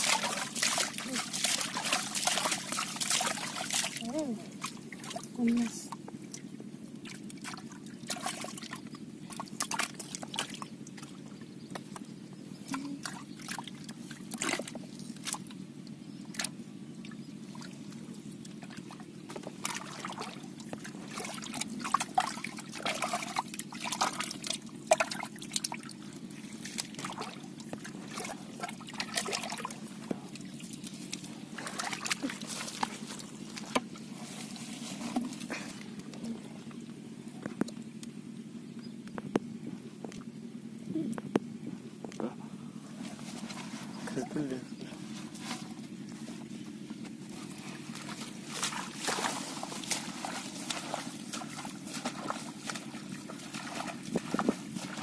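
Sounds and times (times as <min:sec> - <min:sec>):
hands splashing in muddy water: 0:00.0 - 0:05.6, 0:12.7 - 0:15.6, 0:18.5 - 0:36.2, 0:47.3 - 0:55.0.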